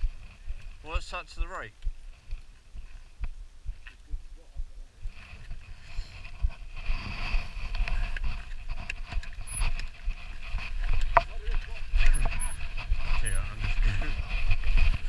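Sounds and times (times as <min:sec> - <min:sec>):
wind rumble on microphone: 0:01.8 - 0:15.0
bike rattling: 0:05.1 - 0:15.0.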